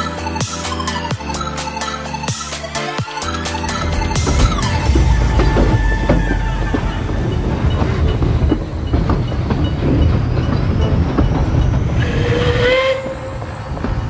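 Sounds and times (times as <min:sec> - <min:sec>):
steam train rumbling: 0:02.1 - 0:14.0
wheels clicking over rails: 0:03.2 - 0:14.0
steam locomotive whistle: 0:12.0 - 0:13.4.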